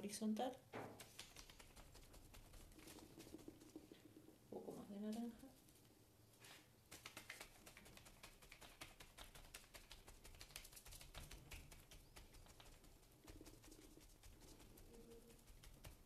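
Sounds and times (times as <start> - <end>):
sponge dabbing on paper: 0.8 - 3.9, 6.4 - 16.0.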